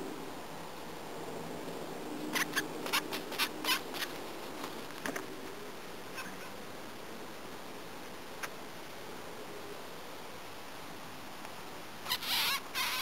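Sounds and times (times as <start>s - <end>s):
mouse squeaking in distress: 12.0s - 13.0s.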